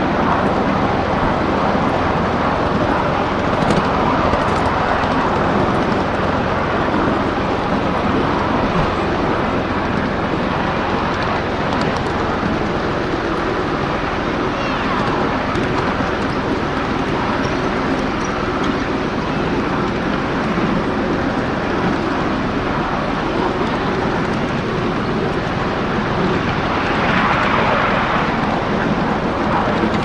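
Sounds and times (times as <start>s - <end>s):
miniature train wheels clattering: 3.5s - 7.2s.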